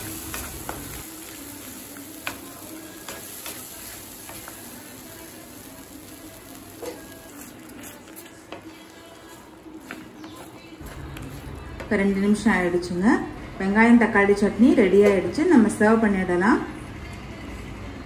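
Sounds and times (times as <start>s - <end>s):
chutney sizzling in oil: 0.0s - 11.8s.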